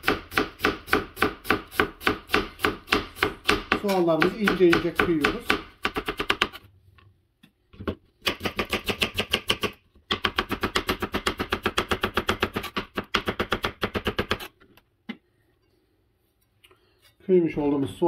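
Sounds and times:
knife chopping on cutting board: 0.0 - 6.6.

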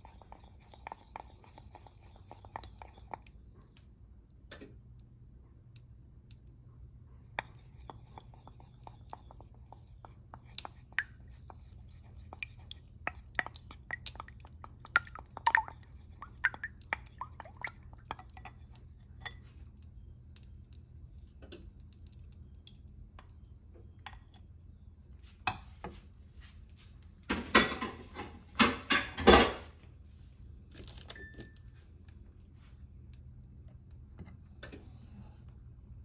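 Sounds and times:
scraping eggs from bowl: 0.0 - 3.3, 7.3 - 14.8.

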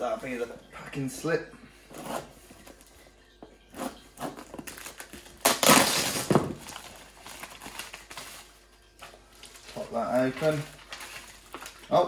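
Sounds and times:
knife cutting plastic packaging: 3.7 - 8.5
plastic crinkling: 3.9 - 12.0
loud plastic crackle: 4.5 - 12.0.

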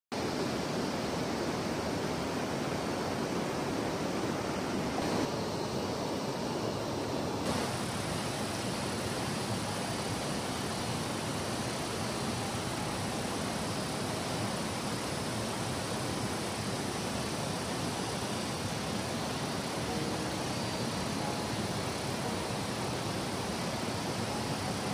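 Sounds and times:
river rushing over rocks: 0.2 - 24.9.

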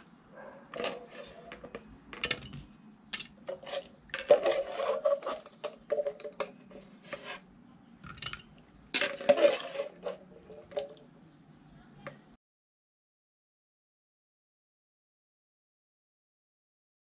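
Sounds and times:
metal spoon scraping a metal pot: 0.6 - 2.6, 3.2 - 11.0.

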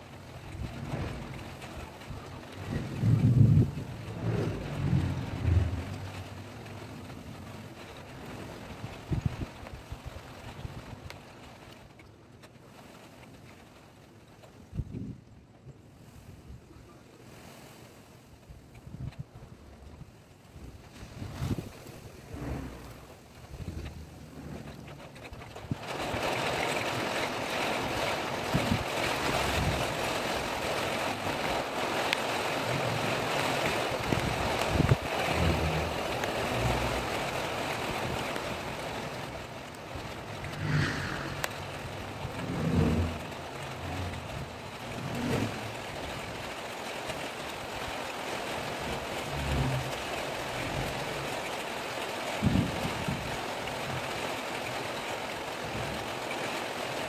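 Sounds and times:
wind buffeting microphone: 0.0 - 11.4, 18.3 - 51.6, 52.3 - 54.2
wind gusting: 0.4 - 10.9, 20.1 - 51.2.

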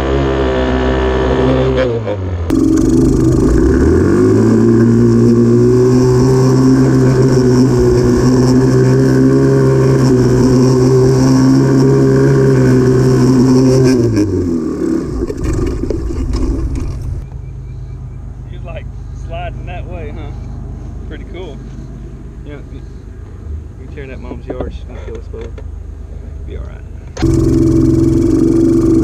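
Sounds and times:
quad engine revving: 0.0 - 17.2, 27.2 - 29.0.

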